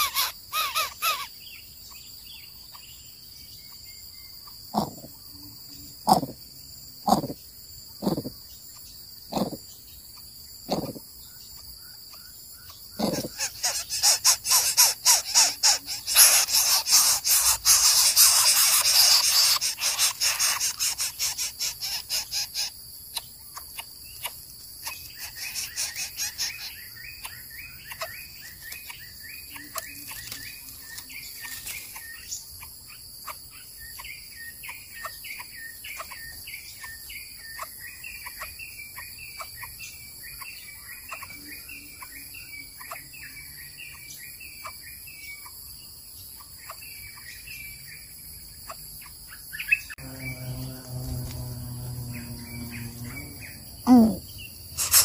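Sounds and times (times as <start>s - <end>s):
loud pulsing insect trill: 0.0s - 55.0s
high-pitched insect drone: 12.6s - 22.8s, 49.8s - 55.0s
short high chirps: 54.8s - 55.0s.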